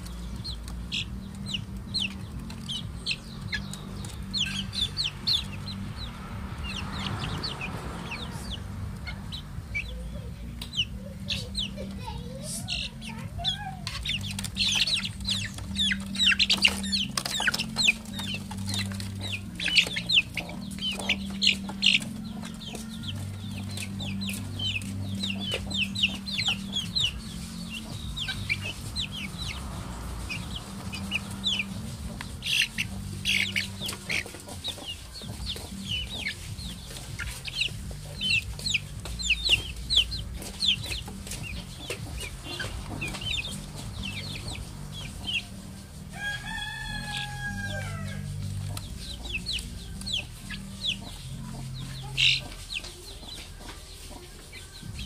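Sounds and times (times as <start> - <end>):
chicks peeping: 0.0 - 55.0.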